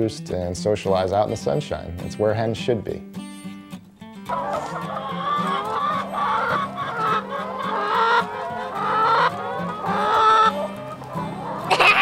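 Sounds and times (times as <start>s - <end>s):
hens clucking: 4.3s - 12.0s.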